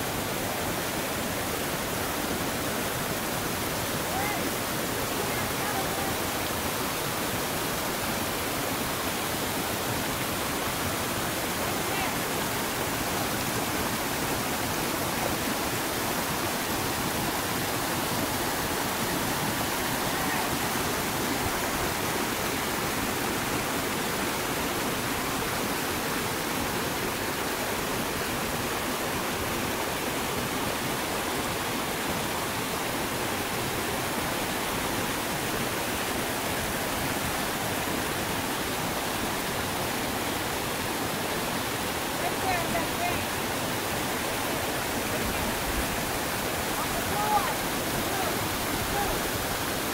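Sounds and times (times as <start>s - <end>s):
river rapids roaring: 0.0s - 49.9s.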